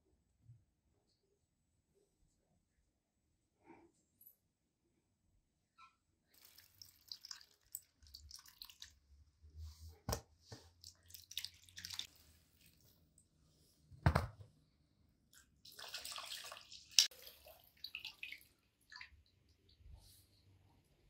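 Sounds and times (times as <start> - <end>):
water splashing and dripping: 6.3 - 9.1, 10.8 - 13.2, 15.4 - 19.8.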